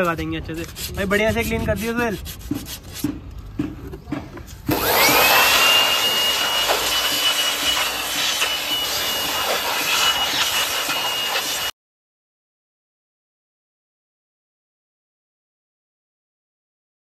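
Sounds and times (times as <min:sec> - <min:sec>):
electric power tool whining: 0:04.7 - 0:11.7
loud hiss: 0:04.7 - 0:11.7.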